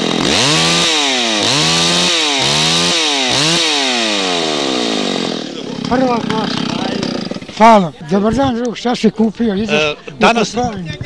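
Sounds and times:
chainsaw revving: 0.0 - 8.0.

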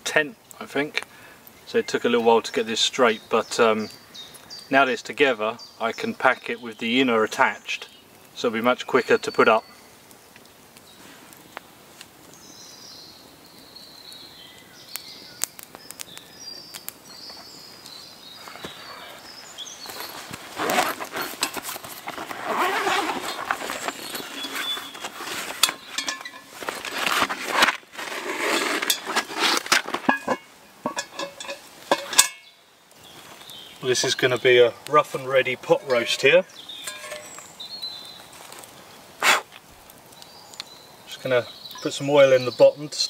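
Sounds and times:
fabric rustling: 19.9 - 30.5
bag unzipping: 20.0 - 26.0, 26.6 - 30.0
pot set down on log knock: 25.5 - 27.8, 28.8 - 32.4.

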